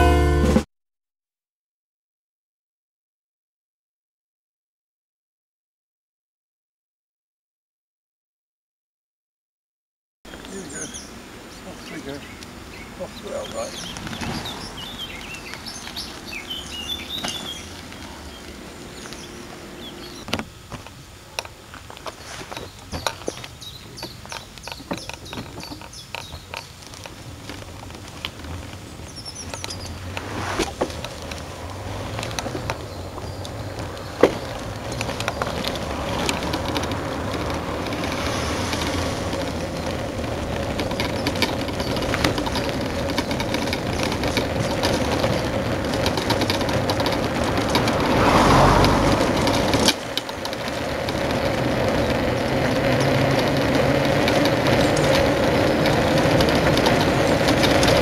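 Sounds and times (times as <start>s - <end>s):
birds chirping: 10.3s - 51.5s
tyres rumbling on pavement: 10.3s - 58.0s
trailer frame rattling: 22.3s - 58.0s.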